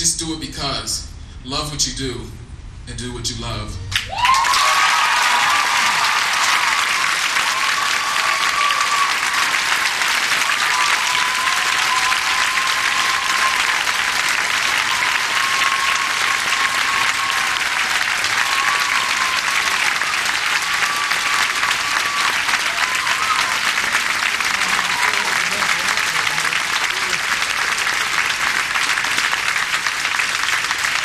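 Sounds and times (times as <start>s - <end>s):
audience applauding: 3.9s - 31.0s.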